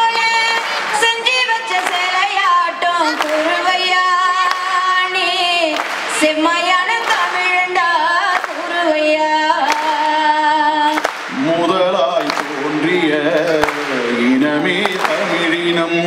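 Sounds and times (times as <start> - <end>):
woman singing with long held notes: 0.0 - 11.0
singers performing a folk song: 0.0 - 16.0.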